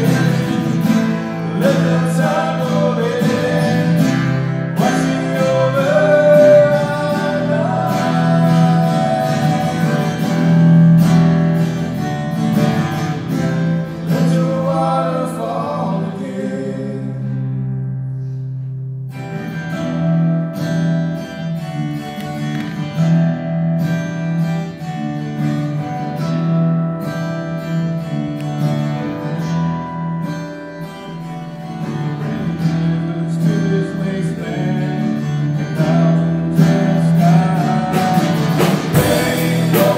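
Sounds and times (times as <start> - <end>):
man singing: 0.0 - 10.6, 14.0 - 17.4, 32.2 - 39.9
strummed acoustic guitar: 0.0 - 39.9.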